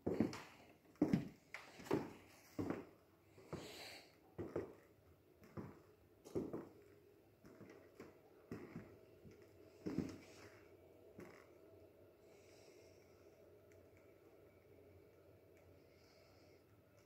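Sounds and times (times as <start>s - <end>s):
slow footsteps: 0.0s - 11.6s.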